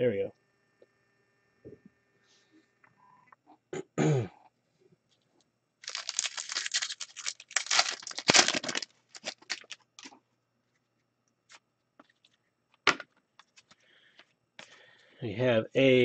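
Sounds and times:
foil wrapper tearing and crinkling: 0:05.8 - 0:10.1
light crackles of wrapper: 0:05.8 - 0:10.2.

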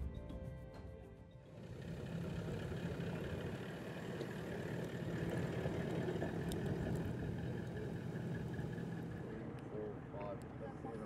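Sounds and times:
vehicle engine humming: 0:01.5 - 0:10.1.

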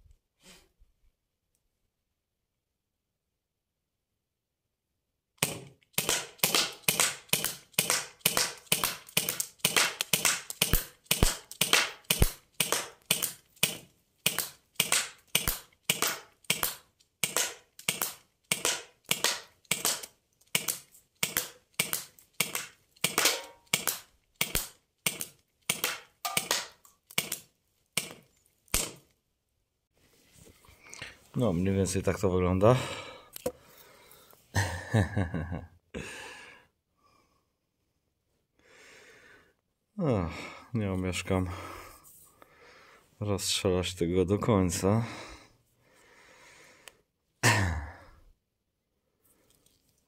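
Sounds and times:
bb gun shots popping: 0:05.4 - 0:27.4.

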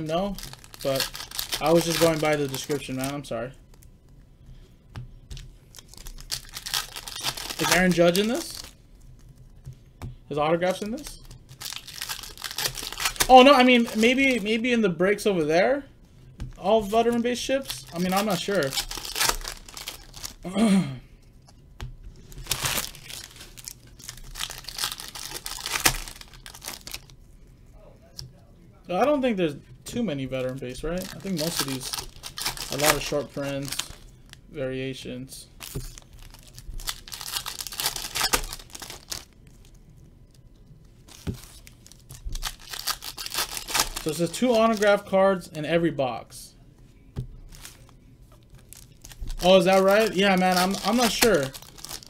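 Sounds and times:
card pack wrappers crinkling: 0:00.0 - 0:03.9, 0:05.3 - 0:08.8, 0:10.6 - 0:14.6, 0:16.5 - 0:20.4, 0:22.2 - 0:27.2, 0:30.2 - 0:34.5, 0:35.6 - 0:45.1, 0:47.5 - 0:52.0.

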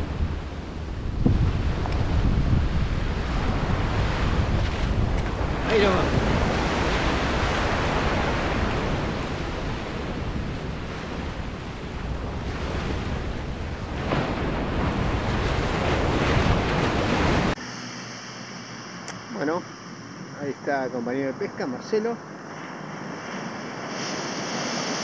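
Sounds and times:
wind buffeting microphone: 0:00.0 - 0:17.6
waves breaking on beach: 0:00.0 - 0:25.0.

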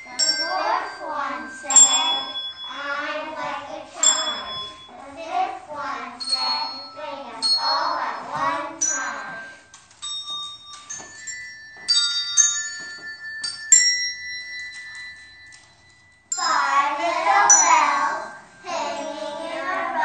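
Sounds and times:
children's voices: 0:00.0 - 0:09.7, 0:16.4 - 0:20.0
struck bell-like chimes: 0:00.0 - 0:20.0.

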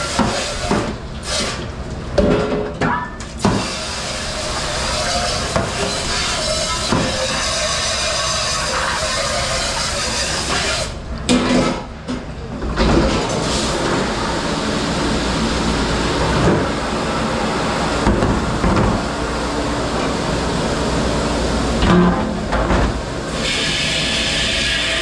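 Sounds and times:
kitchen dish station rushing noise: 0:03.4 - 0:11.9.

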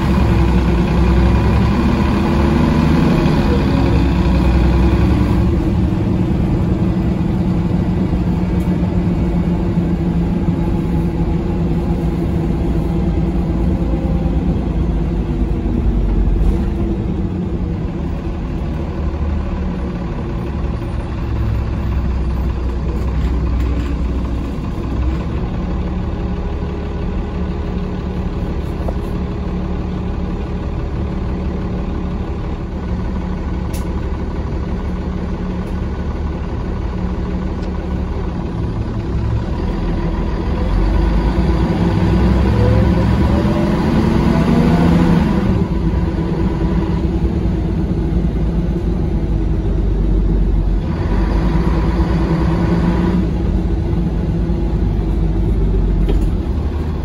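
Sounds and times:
bus engine droning: 0:00.0 - 0:57.0.

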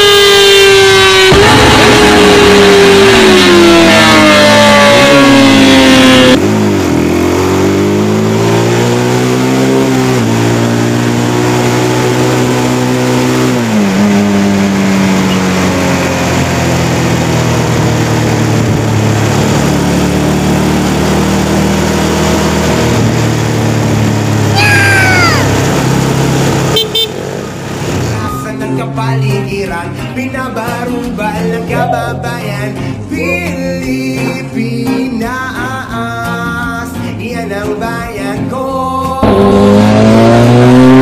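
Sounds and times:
motorcycle engine accelerating: 0:00.0 - 0:28.5, 0:39.2 - 0:41.0.

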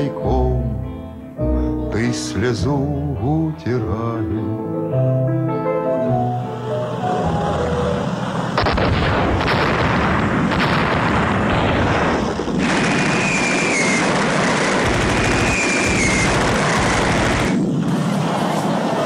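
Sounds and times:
heavy explosion blasts: 0:08.4 - 0:19.0.

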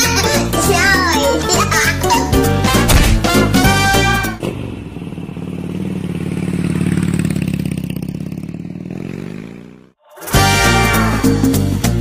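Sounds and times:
motorcycle engine buzzing: 0:03.2 - 0:10.0.

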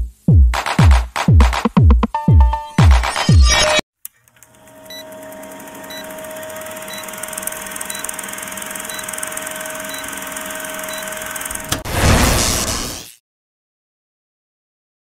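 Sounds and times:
film projector whirring: 0:04.1 - 0:11.8.

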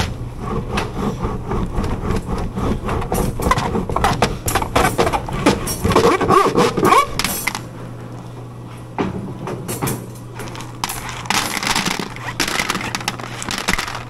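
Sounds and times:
steady low hum: 0:00.0 - 0:14.0
candy balls clattering on wood: 0:10.4 - 0:14.0.

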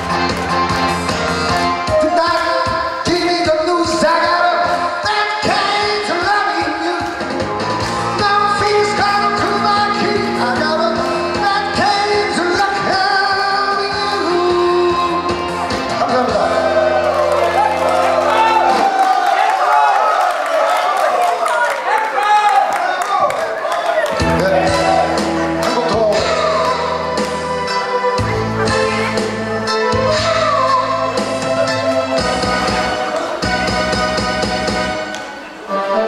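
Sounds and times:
instrumental backing music: 0:00.0 - 0:19.2, 0:24.1 - 0:36.0
man singing into microphone: 0:01.9 - 0:07.4, 0:08.0 - 0:17.0, 0:24.2 - 0:27.2, 0:28.2 - 0:31.9.

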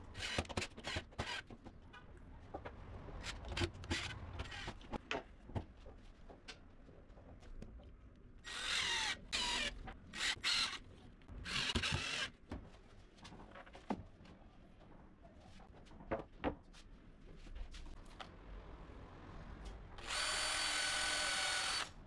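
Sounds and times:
cordless drill motor whine: 0:20.0 - 0:21.9.

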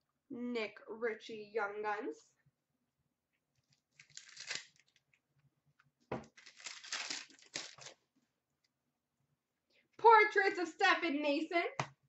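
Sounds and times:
card packaging rustling and crinkling: 0:03.6 - 0:05.1, 0:06.2 - 0:08.0.

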